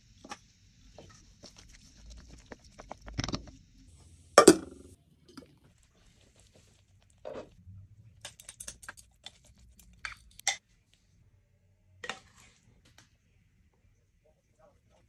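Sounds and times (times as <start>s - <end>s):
glass lid knock: 4.4s - 4.8s
kitchen clatter: 4.4s - 4.9s.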